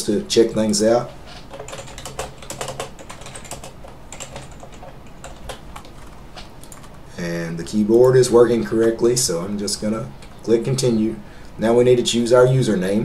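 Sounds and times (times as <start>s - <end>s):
computer keyboard typing: 1.5s - 7.0s.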